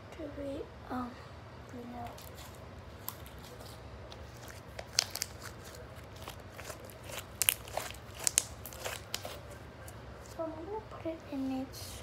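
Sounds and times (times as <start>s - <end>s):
slime crackling pops: 6.6s - 9.4s.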